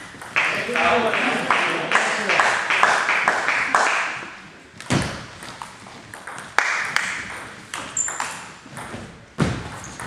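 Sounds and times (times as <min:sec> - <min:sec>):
table tennis ball hits: 0:04.1 - 0:10.0.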